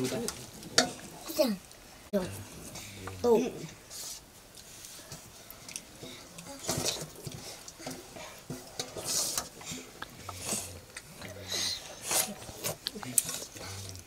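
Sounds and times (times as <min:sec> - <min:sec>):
slurping: 0:04.0 - 0:14.0.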